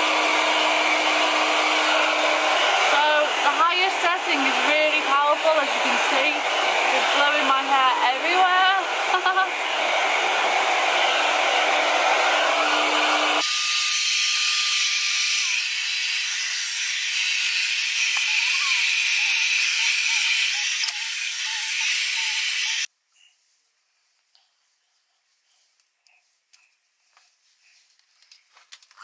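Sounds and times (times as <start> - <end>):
hair dryer blowing air: 0.0 - 22.9.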